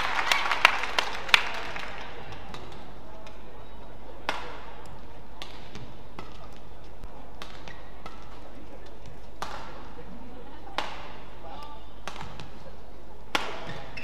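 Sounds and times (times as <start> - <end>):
rackets hitting shuttlecock: 2.1 - 10.0, 10.6 - 12.7, 13.3 - 14.0.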